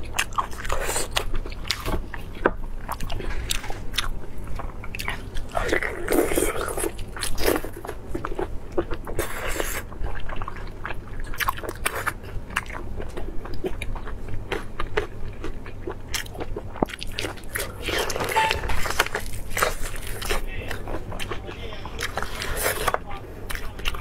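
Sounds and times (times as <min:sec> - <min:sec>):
close chewing and biting: 0:00.0 - 0:18.4, 0:19.1 - 0:24.0.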